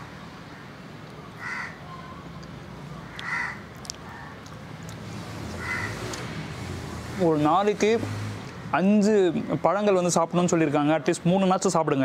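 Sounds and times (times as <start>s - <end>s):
faint outdoor background noise: 0.0s - 12.0s
crow cawing: 1.4s - 1.8s, 3.0s - 4.4s, 5.6s - 6.0s.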